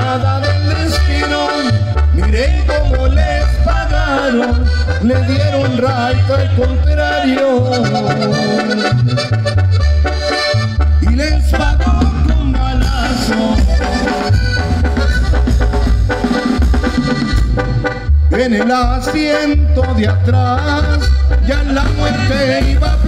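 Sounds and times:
bass drum beat: 0:00.0 - 0:07.2, 0:10.7 - 0:23.0
wind-instrument melody: 0:00.0 - 0:23.0.

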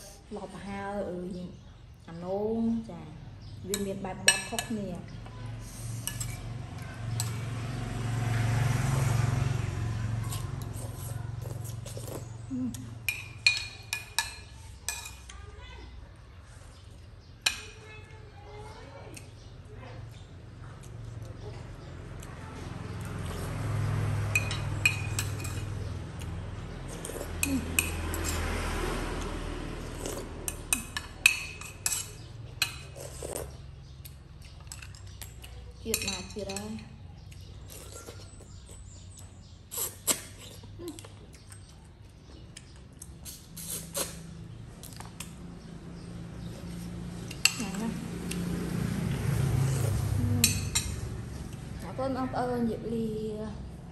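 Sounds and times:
metal spoon clinking ceramic bowl: 0:13.1 - 0:15.3, 0:24.3 - 0:25.8, 0:30.5 - 0:32.9, 0:50.4 - 0:51.0.

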